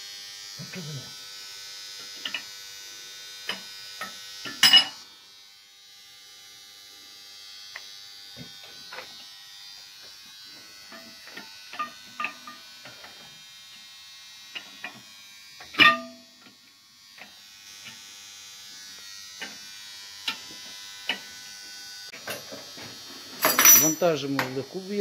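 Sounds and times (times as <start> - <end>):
electric motor hum: 0.0 - 23.4
steel tools clinking and knocking: 4.5 - 5.0, 15.8 - 16.2, 22.2 - 22.6, 23.4 - 24.6
loud ringing metal clank: 15.8 - 16.2.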